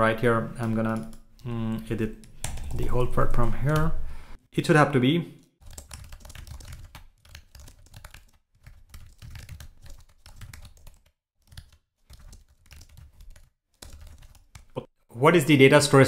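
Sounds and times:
fast keyboard typing: 0.6 - 3.8, 5.6 - 14.8.

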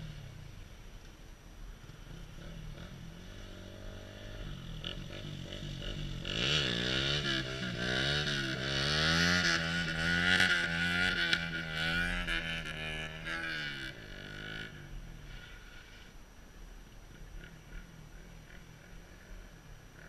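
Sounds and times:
dirt bike engine revving: 1.8 - 15.5.

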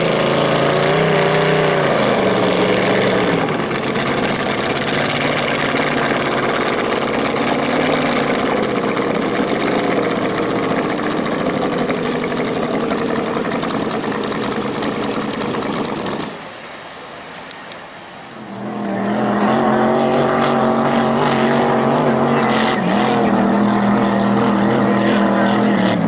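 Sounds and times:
boat engine droning: 0.0 - 26.0
race boat engines roaring: 0.0 - 26.0.

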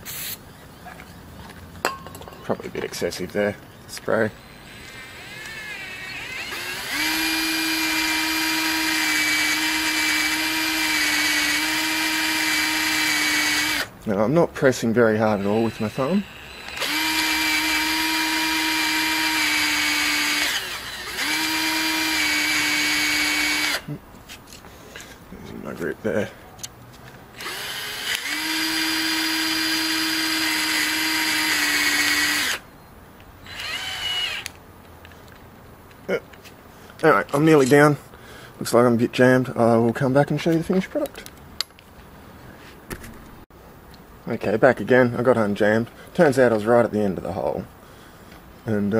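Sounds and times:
cordless drill motor whining: 4.3 - 13.9, 15.2 - 23.9, 27.3 - 32.6, 33.5 - 34.6.

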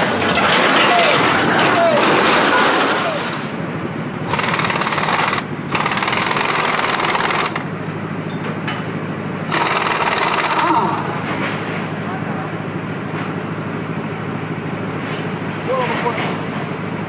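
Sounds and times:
low engine hum: 3.0 - 17.0
power tool rattling: 4.2 - 7.7, 9.5 - 11.2.

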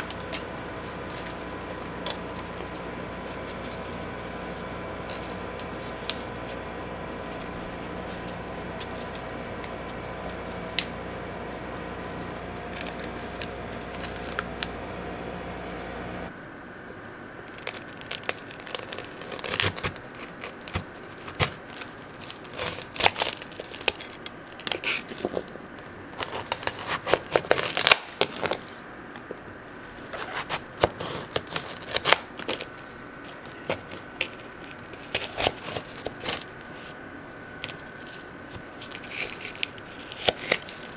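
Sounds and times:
plastic cup crinkling: 0.0 - 15.2, 17.5 - 28.8, 37.6 - 40.9
steady hum: 0.0 - 24.6, 28.4 - 40.9
knife crunching candy shell: 30.1 - 37.0, 37.6 - 40.9.

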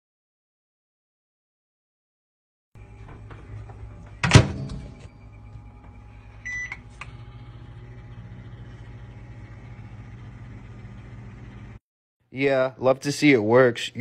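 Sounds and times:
microwave oven humming: 2.8 - 11.8
microwave door shutting: 4.1 - 5.1
keypad beeps: 6.4 - 6.8.

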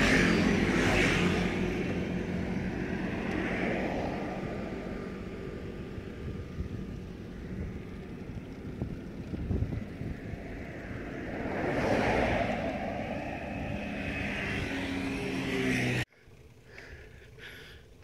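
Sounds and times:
motor vehicle passing: 0.0 - 17.4
low rumble of traffic: 0.0 - 18.0
moving bicycle: 5.1 - 11.2.

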